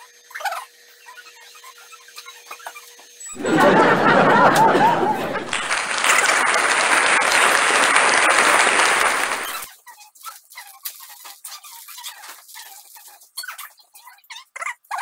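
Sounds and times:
applause with cheering: 3.4s - 9.7s.

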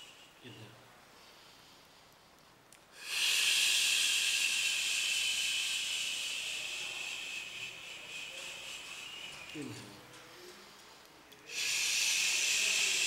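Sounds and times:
hissing exhale through teeth: 3.0s - 7.2s, 11.4s - 13.0s.

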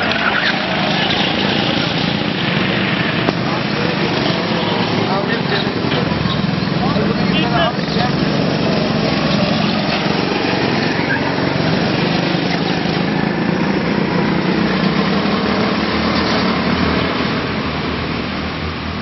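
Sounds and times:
go-kart engines buzzing: 0.0s - 19.0s.

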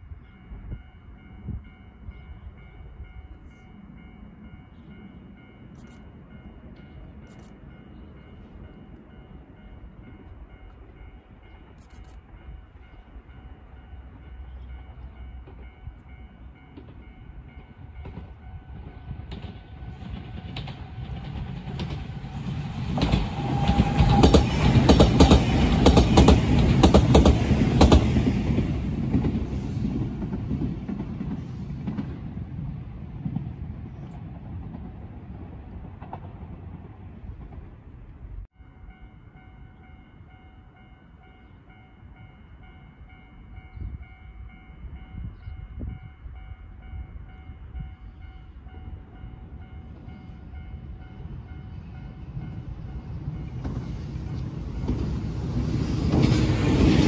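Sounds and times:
electric train rumbling past: 0.0s - 57.0s
wheels clacking over rail joints: 16.7s - 32.5s.

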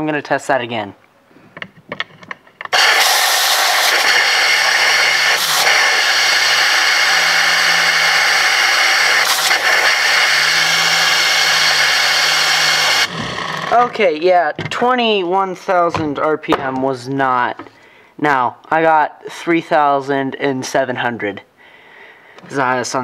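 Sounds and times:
air turbine hissing: 2.7s - 14.2s.

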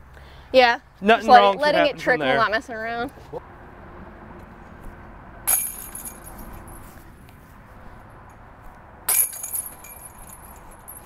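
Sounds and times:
disc jangling basket chains: 5.5s - 7.0s, 9.1s - 11.0s.

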